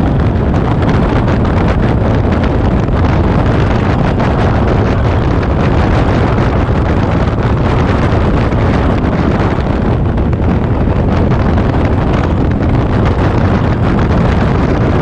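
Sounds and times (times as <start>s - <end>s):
motorcycle engine running: 0.0s - 15.0s
tyres on road: 0.0s - 15.0s
wind buffeting microphone: 0.0s - 15.0s.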